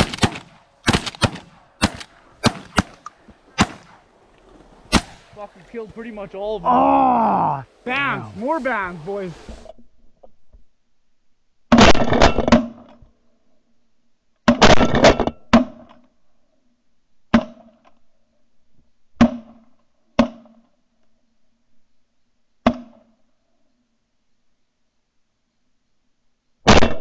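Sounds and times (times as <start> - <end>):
shotguns firing: 0.0 - 5.5.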